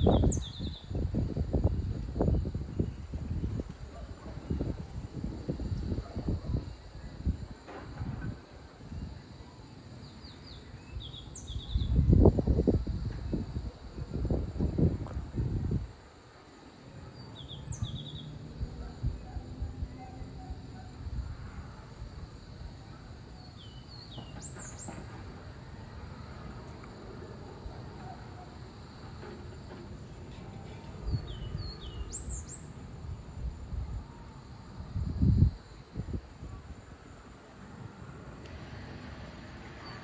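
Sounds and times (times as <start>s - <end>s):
bird chirping song: 0.0s - 4.6s, 10.0s - 12.2s, 17.1s - 19.4s, 23.4s - 25.0s, 30.3s - 32.8s.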